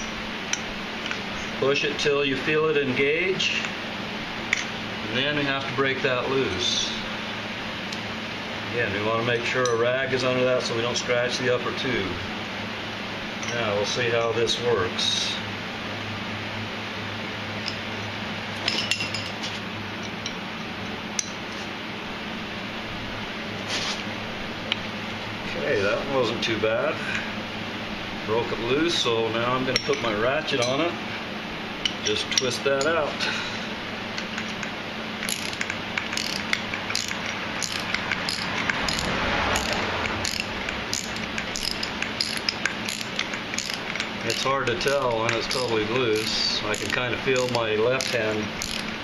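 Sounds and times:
metal tools clinking: 0:18.6 - 0:20.4, 0:29.7 - 0:30.8, 0:35.2 - 0:48.9
socket ratchet clicking: 0:34.2 - 0:49.0.

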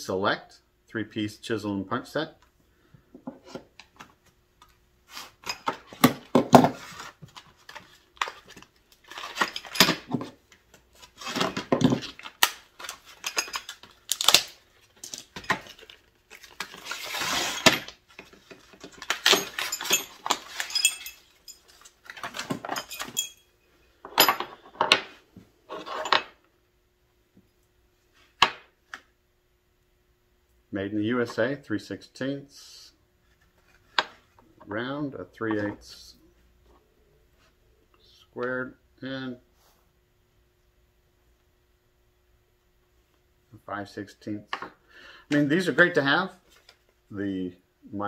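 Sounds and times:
steel chisels clinking and rattling: 0:13.1 - 0:13.8, 0:19.2 - 0:23.5.

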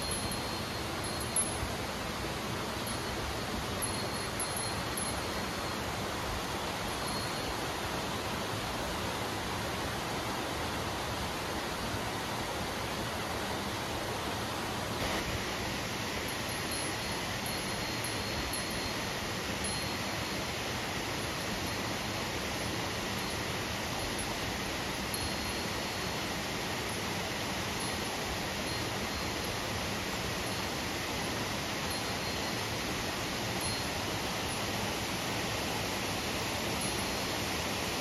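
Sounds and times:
faint high ringing tones: 0:00.0 - 0:08.4, 0:15.0 - 0:38.0
mountain river rushing: 0:00.0 - 0:38.0.

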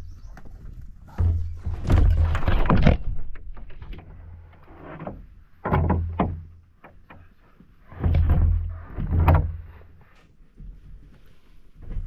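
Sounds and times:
canoe hull booming: 0:01.1 - 0:03.6, 0:05.2 - 0:06.6
pack scraping against canoe hull: 0:07.8 - 0:10.2.

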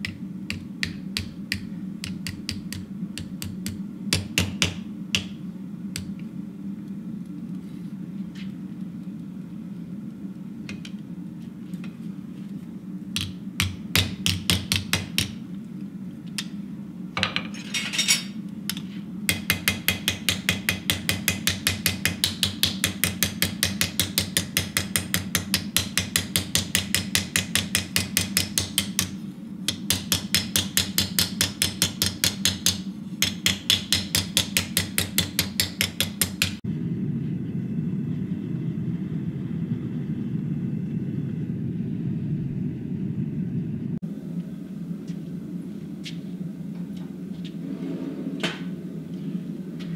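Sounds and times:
gas forge rumble: 0:00.0 - 0:49.9
hammer striking steel on anvil: 0:19.3 - 0:36.6.

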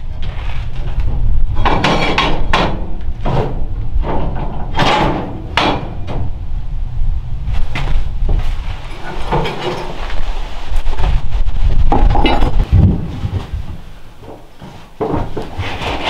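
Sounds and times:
cast iron parts knocking and clanking: 0:01.5 - 0:06.3, 0:08.9 - 0:10.0, 0:11.9 - 0:12.7.

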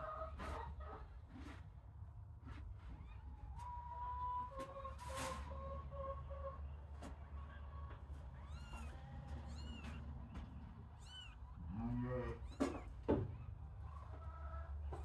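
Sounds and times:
kittens mewing: 0:11.0 - 0:13.1.

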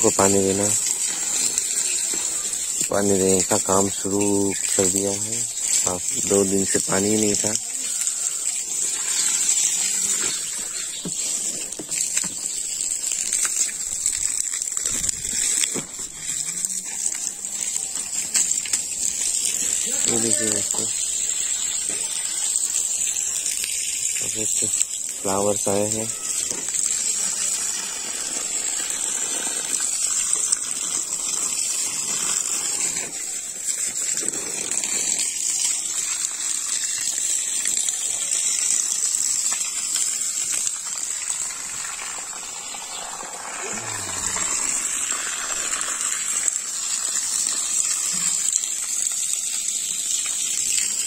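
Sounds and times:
high-pitched hiss: 0:00.0 - 0:51.0
water gushing from hose: 0:00.0 - 0:51.0.

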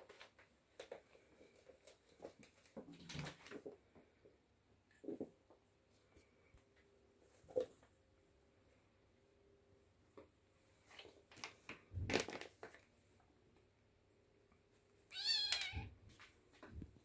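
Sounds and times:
kittens scuffling: 0:00.0 - 0:04.3.

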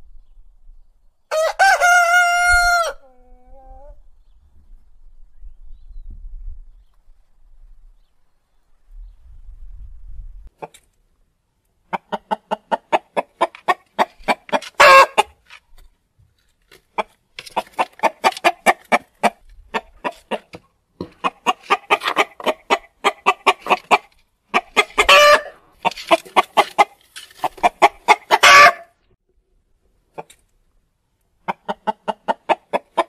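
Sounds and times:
chicken cackling and squawking: 0:01.3 - 0:04.0, 0:11.8 - 0:15.4, 0:16.8 - 0:29.0, 0:31.4 - 0:33.0.

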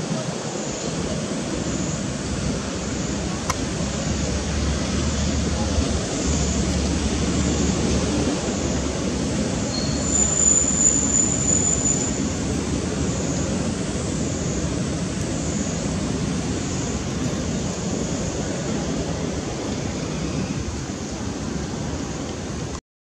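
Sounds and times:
outdoor background noise: 0:00.0 - 0:22.8
thin high-pitched whine: 0:09.6 - 0:12.4.

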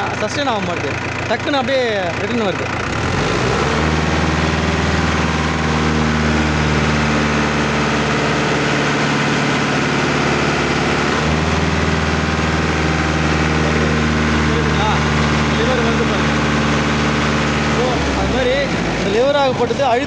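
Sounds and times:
person talking: 0:00.0 - 0:02.8
tractor diesel engine running: 0:00.0 - 0:20.0.

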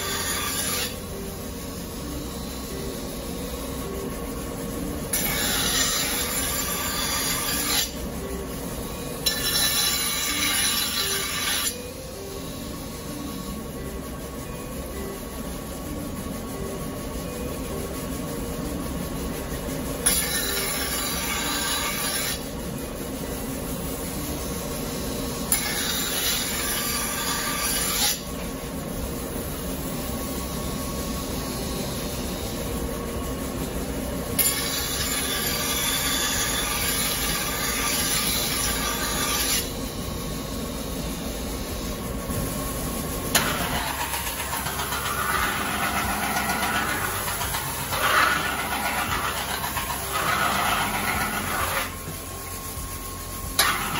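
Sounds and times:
grinding wheel rumbling: 0:43.1 - 0:53.9
knife hissing on grindstone: 0:43.4 - 0:52.2.

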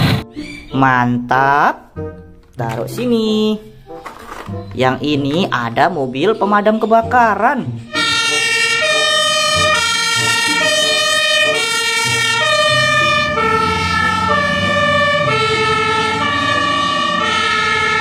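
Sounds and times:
truck engine rumbling: 0:01.9 - 0:18.0
two-tone siren: 0:07.9 - 0:18.0.

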